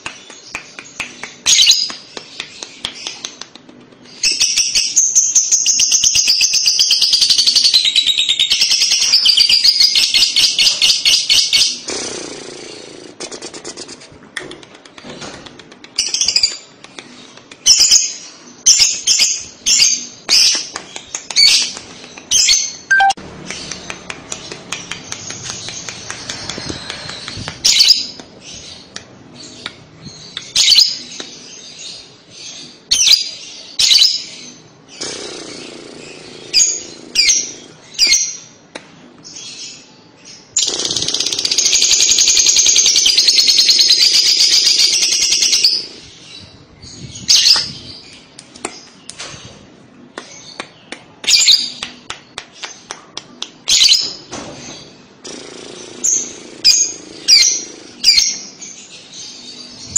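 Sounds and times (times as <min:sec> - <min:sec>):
lovebird chirps and chatter: 0:14.8 - 0:38.4.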